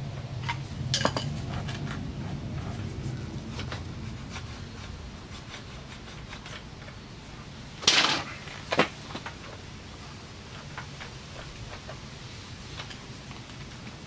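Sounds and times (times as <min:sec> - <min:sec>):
sharp metal clunk: 0:07.8 - 0:08.4.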